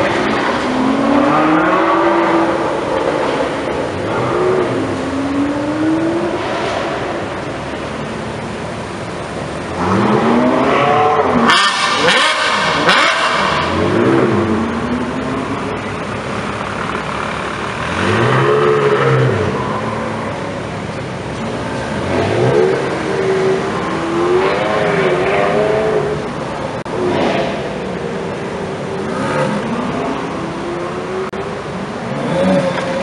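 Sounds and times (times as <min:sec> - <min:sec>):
sports car engines revving: 0:00.0 - 0:33.0.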